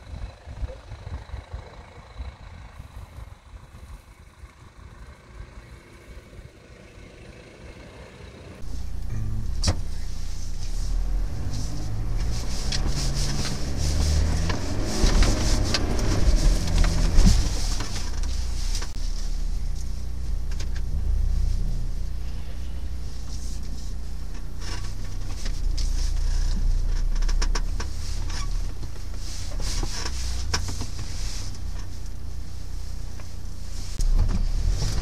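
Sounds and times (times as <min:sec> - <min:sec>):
distant engine running: 0:00.0 - 0:35.0
vehicle driving over rough ground: 0:00.0 - 0:35.0
knocks and rattles from vehicle body: 0:11.5 - 0:19.3, 0:23.2 - 0:32.1.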